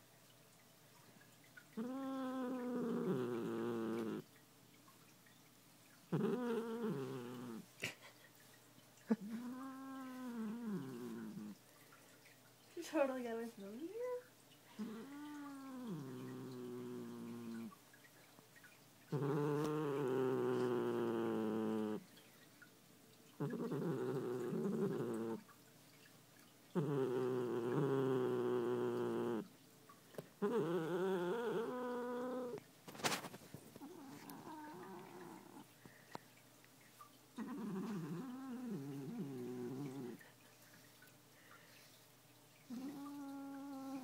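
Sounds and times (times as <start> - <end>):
cat growling: 1.8 - 4.2, 6.1 - 7.7, 9.1 - 11.6, 14.8 - 17.7, 19.1 - 22.0, 23.4 - 25.4, 26.8 - 29.5, 30.4 - 33.2, 33.8 - 35.7, 37.4 - 40.2, 42.7 - 44.0
cat growling yowls: 30.4 - 32.6, 33.8 - 35.6.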